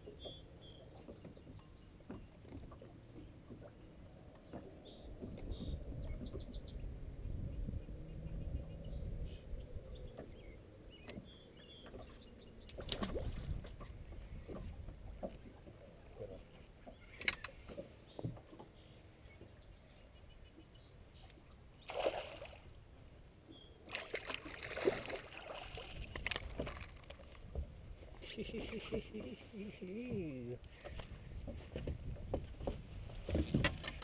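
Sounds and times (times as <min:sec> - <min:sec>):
water sloshing against boat hull: 0:00.0 - 0:06.9, 0:10.0 - 0:19.6, 0:23.4 - 0:34.0.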